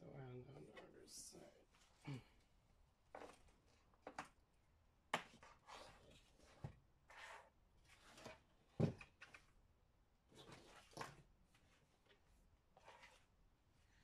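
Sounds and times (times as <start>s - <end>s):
clicks and rustles of cables: 3.1s - 4.4s, 8.0s - 9.6s.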